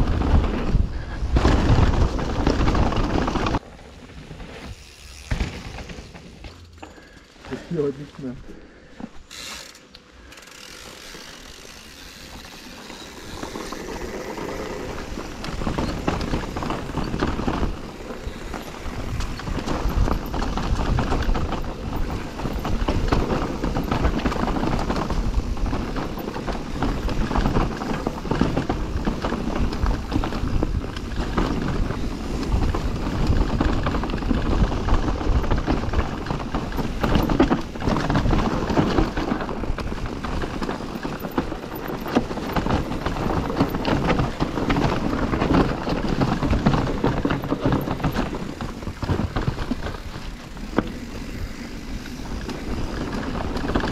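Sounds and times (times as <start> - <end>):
bike chain and frame rattling: 0.0 - 53.9
bike tyres rolling over dirt: 0.0 - 53.9.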